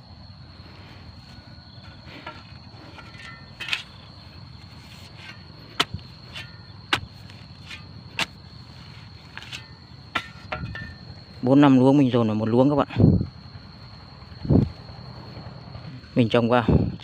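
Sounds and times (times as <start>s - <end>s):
shovel striking stony soil: 2.2s - 4.1s, 4.8s - 8.4s, 9.2s - 11.1s.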